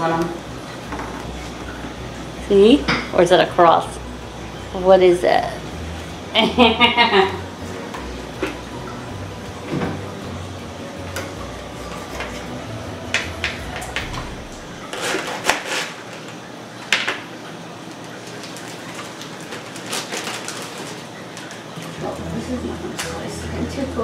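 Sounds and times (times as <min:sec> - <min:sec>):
utensils and dishes clinking: 0:00.0 - 0:03.9, 0:11.0 - 0:17.3
low hum: 0:00.0 - 0:14.9.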